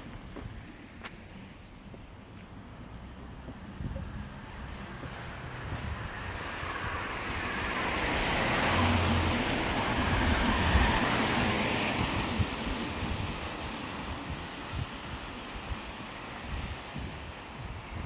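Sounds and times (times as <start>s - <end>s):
car passing on wet road: 2.7s - 18.0s.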